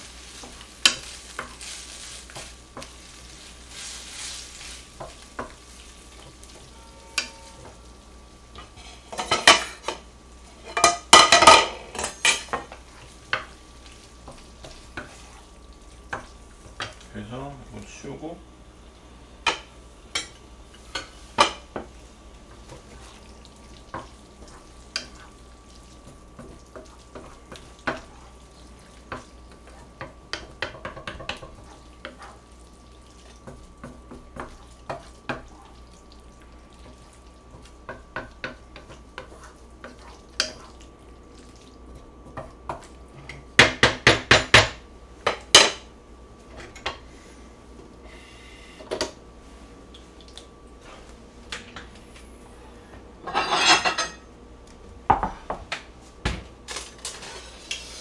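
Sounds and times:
utensils scraping in frying pan: 0.0s - 17.0s, 23.9s - 32.5s, 36.8s - 40.8s, 53.2s - 54.3s, 57.0s - 58.0s.

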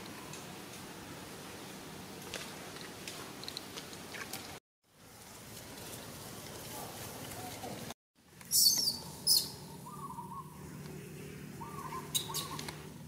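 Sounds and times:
outdoor background noise: 0.0s - 13.0s
animal chirps: 8.5s - 10.6s, 11.6s - 12.8s
whistled calls: 8.5s - 10.6s, 11.6s - 12.8s.

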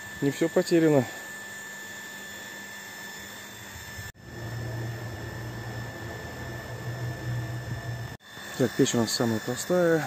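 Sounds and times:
pump electric hum: 0.0s - 10.0s.

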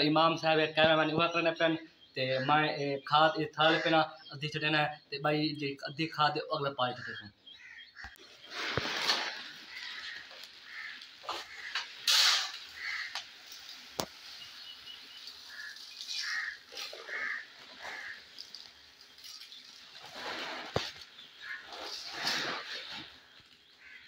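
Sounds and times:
short bird calls: 6.8s - 24.0s
sack rustling: 8.3s - 13.1s, 15.3s - 24.0s.

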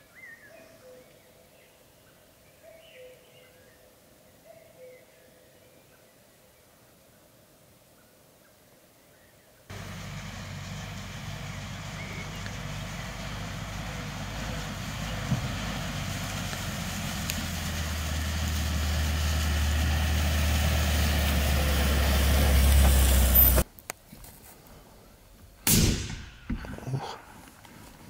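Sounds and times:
vehicle engine running: 9.7s - 23.6s
rifle shot: 25.6s - 26.6s.

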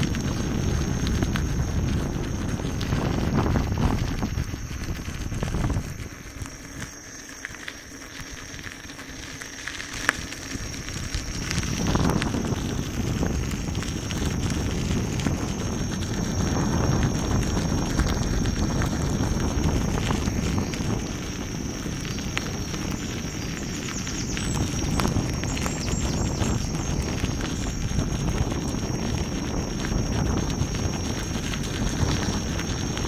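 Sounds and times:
tyre rolling on gravel: 0.0s - 33.0s
wind buffeting microphone: 0.0s - 33.0s.

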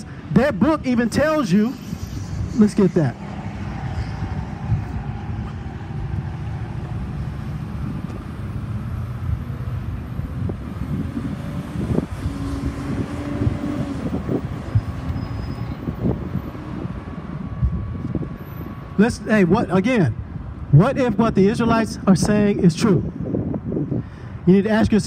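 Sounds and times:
road traffic rumbling: 0.0s - 25.0s.

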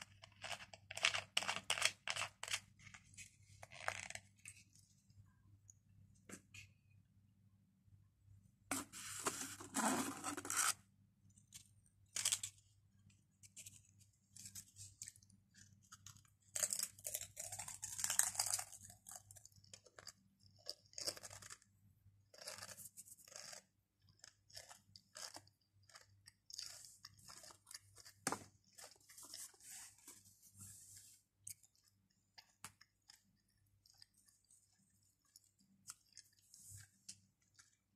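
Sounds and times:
crunching and chewing crisps: 14.4s - 21.7s, 22.3s - 29.6s.

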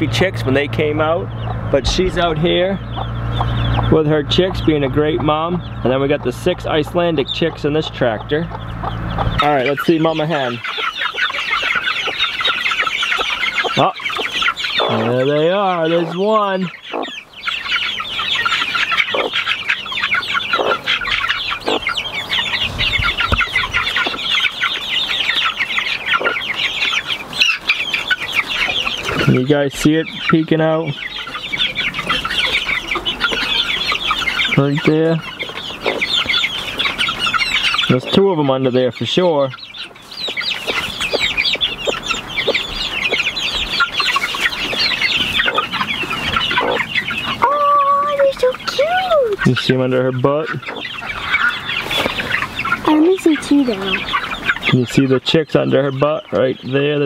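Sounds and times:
chicks peeping: 0.0s - 57.0s.

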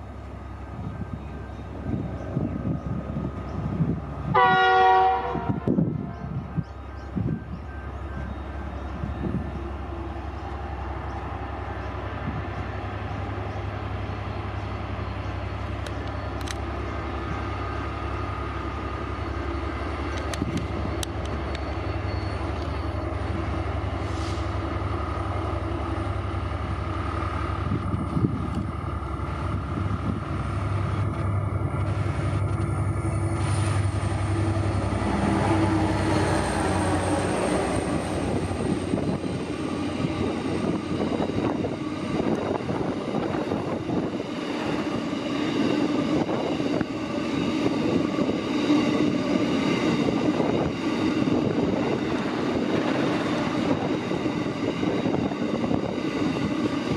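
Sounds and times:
locomotive horn blast: 4.3s - 6.2s
locomotive engine rumble: 5.3s - 56.9s.

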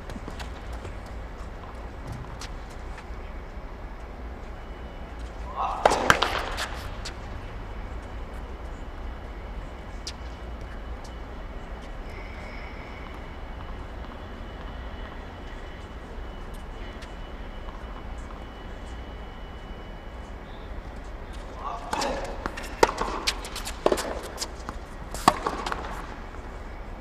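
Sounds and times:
steady low rumble: 0.0s - 27.0s
tennis racket striking ball: 5.6s - 7.1s, 21.8s - 26.1s.

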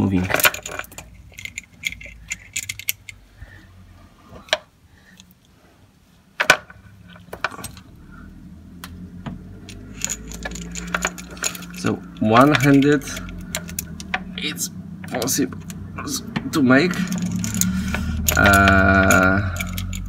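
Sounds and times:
metal chain clinking and rattling: 0.0s - 3.2s, 9.6s - 15.8s, 16.8s - 20.0s.

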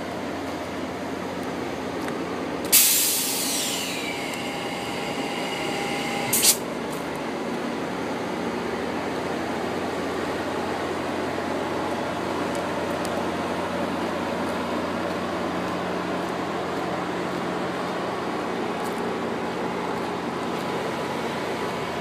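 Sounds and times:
diesel locomotive running: 0.0s - 22.0s
short sharp air puff: 2.7s - 4.2s, 6.1s - 6.6s
loud hiss of compressed air: 2.7s - 6.6s.

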